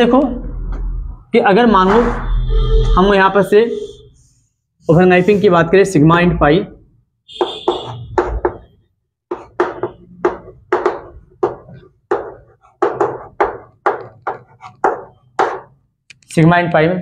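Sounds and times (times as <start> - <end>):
chalk tapping and scraping: 7.3 - 16.3.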